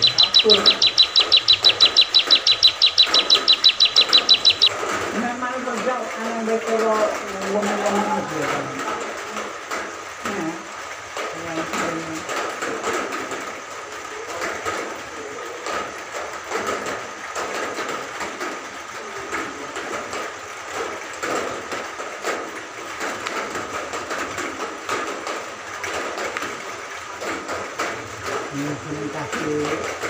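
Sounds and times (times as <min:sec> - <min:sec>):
bird singing fast chirps: 0:00.0 - 0:04.7.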